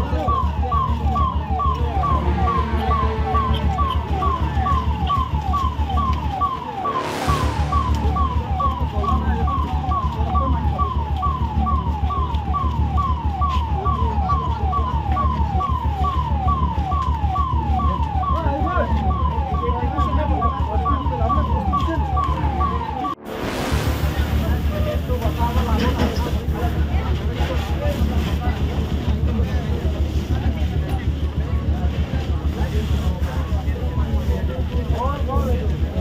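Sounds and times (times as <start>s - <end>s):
electronic siren sweeping: 0.0s - 26.9s.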